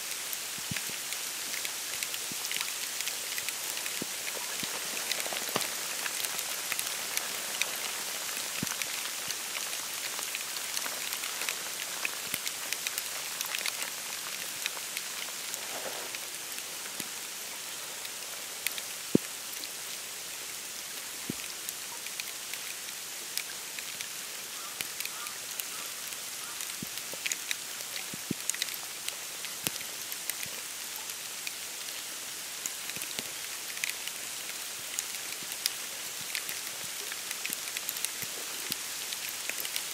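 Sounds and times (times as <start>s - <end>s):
snow pattering on reeds and leaves: 0.0s - 39.9s.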